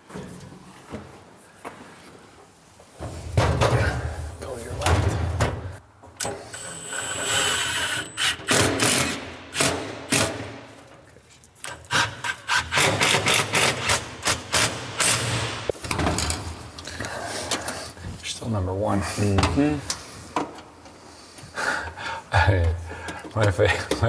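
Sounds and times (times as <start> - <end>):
cordless drill driving screws: 6.6 - 9.2.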